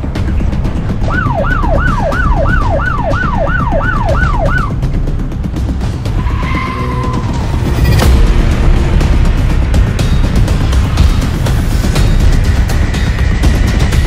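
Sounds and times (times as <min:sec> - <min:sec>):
background music with heavy bass: 0:00.0 - 0:14.0
siren fast wail: 0:01.1 - 0:04.8.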